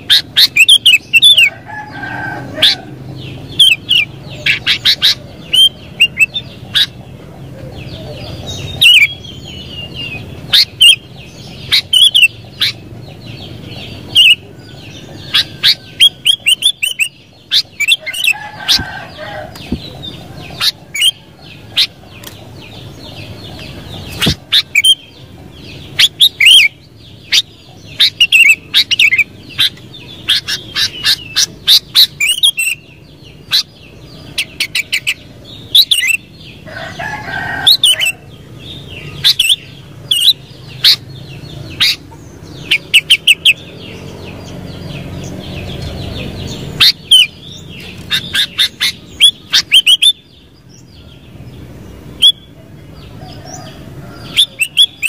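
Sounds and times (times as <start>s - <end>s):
bird chirping and whistling: 0.0s - 1.5s, 3.5s - 7.0s, 8.7s - 12.8s, 15.2s - 18.9s, 23.6s - 25.2s, 26.0s - 36.3s, 39.0s - 41.0s, 46.8s - 50.3s, 52.2s - 52.5s, 54.2s - 55.0s.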